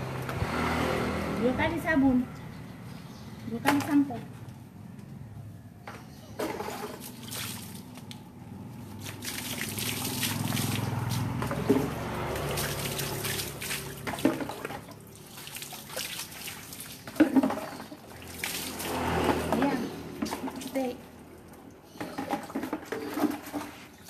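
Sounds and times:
water pouring and splashing: 0:06.4 - 0:24.0.

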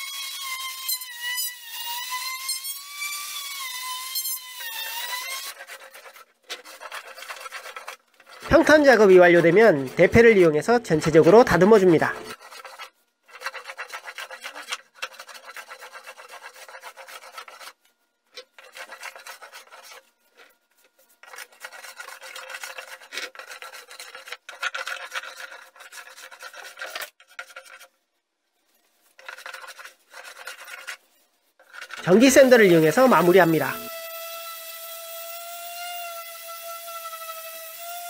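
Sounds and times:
hand plane shaving wood: 0:04.7 - 0:17.8, 0:18.4 - 0:27.9, 0:29.1 - 0:31.0.

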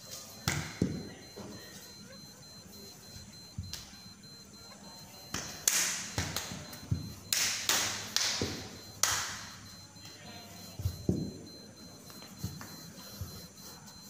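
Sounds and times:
hands slapping body: 0:05.3 - 0:06.7.

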